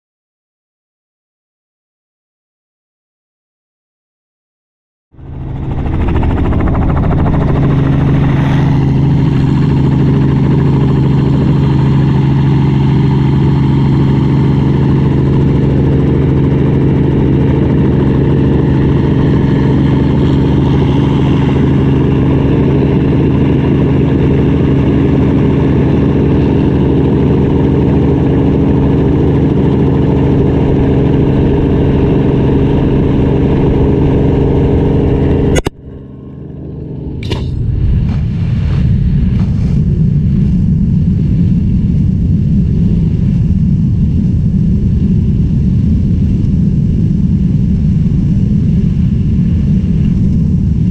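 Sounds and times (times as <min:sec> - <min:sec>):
helicopter engine and rotor droning: 0:05.1 - 0:50.9.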